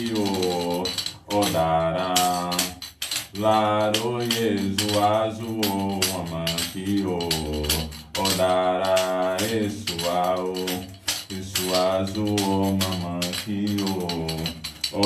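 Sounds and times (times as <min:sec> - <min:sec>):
handheld rattle shaking: 0:00.0 - 0:15.0
person chanting: 0:00.0 - 0:15.0.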